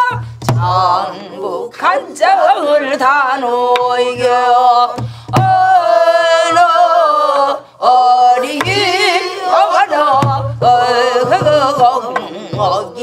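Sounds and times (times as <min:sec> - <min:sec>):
voices singing folk song: 0:00.0 - 0:13.0
barrel drum strikes: 0:08.6 - 0:09.1, 0:10.0 - 0:13.0.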